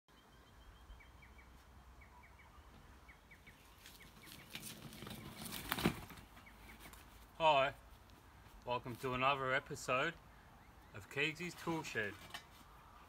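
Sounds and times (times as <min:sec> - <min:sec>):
faint bird chirps: 0:00.1 - 0:05.6
wheelbarrow rattling across grass: 0:03.6 - 0:07.1.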